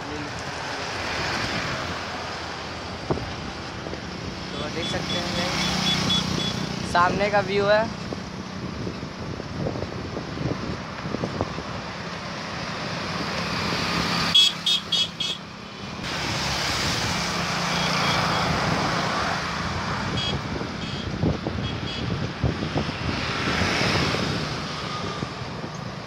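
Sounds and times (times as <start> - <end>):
road and traffic noise: 0.0 - 26.0
wind on microphone: 1.0 - 4.5, 7.7 - 14.2, 18.4 - 26.0
vehicle horn beeps: 5.1 - 6.7, 14.3 - 15.4, 20.1 - 22.2.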